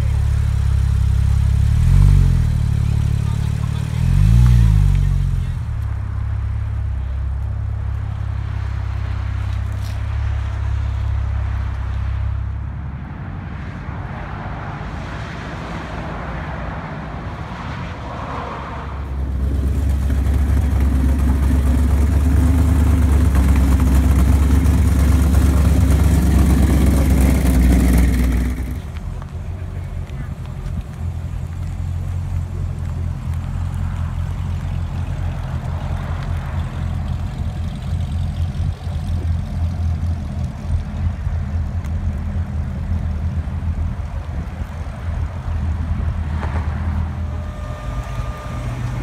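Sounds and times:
car engine low rumble: 0.0 - 49.0
loud deep engine rumble: 0.0 - 49.0.

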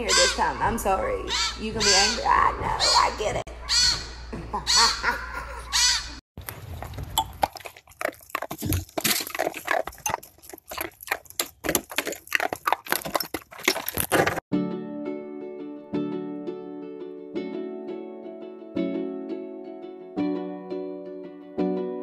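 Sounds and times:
dog crunching icicles: 6.4 - 14.4.

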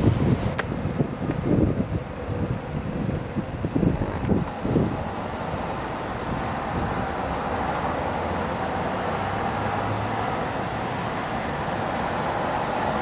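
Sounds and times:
strong wind blowing: 0.0 - 8.1
distant city traffic: 0.0 - 13.0.

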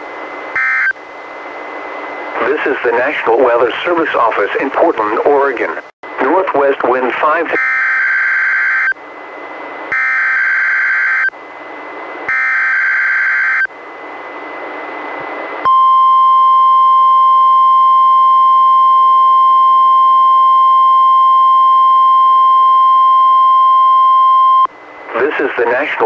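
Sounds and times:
steady warning alarm tone: 0.5 - 1.0, 7.5 - 9.0, 9.9 - 11.4, 12.2 - 13.7, 15.6 - 24.7
radio hiss: 2.2 - 7.6, 25.0 - 26.0.

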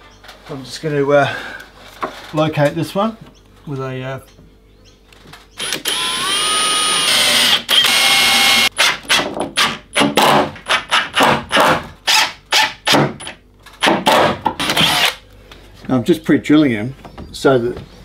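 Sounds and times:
cordless drill running: 5.6 - 8.8, 14.6 - 15.2.

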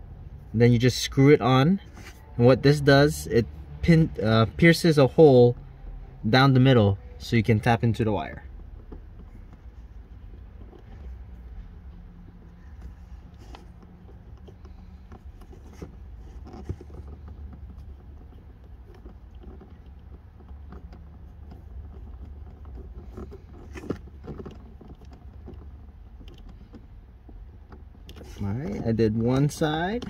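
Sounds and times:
small plastic clicks and rattles: 8.4 - 30.0.

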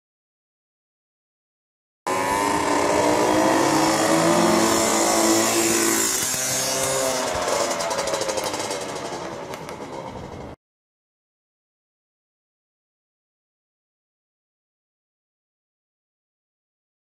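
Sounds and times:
moped engine passing: 2.1 - 10.6.

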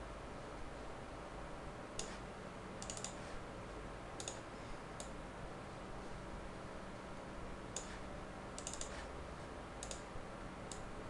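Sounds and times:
faint steady hum: 0.0 - 11.0
computer mouse clicks: 2.0 - 2.2, 2.8 - 3.3, 4.2 - 5.2, 7.7 - 8.0, 8.6 - 9.1, 9.8 - 10.1, 10.7 - 10.9.

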